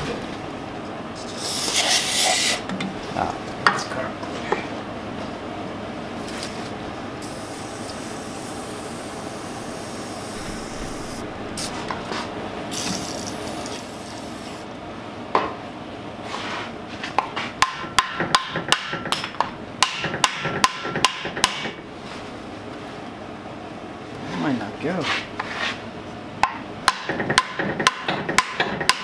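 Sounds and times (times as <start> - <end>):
steady hiss: 7.2 - 11.9, 12.7 - 14.7.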